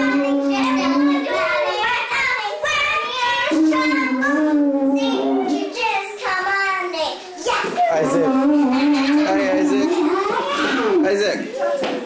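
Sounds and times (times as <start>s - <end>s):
child singing long notes: 0.0s - 1.6s, 3.4s - 5.7s.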